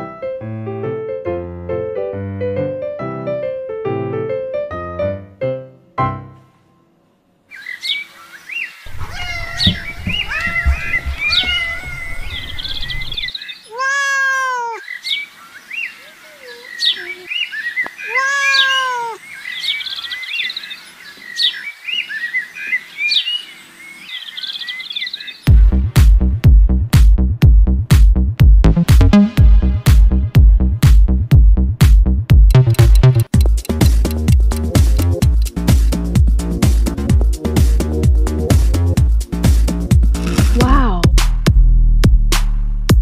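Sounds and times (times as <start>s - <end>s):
small birds chirping: 7.5s - 25.5s
cat meowing: 8.9s - 12.8s, 13.6s - 14.8s, 16.1s - 17.3s, 18.0s - 19.2s.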